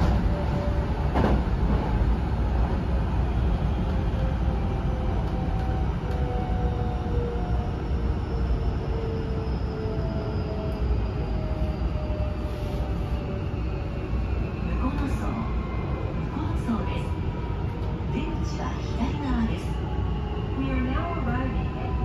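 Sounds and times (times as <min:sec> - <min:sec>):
train wheels rumbling on rail: 0:00.0 - 0:07.7.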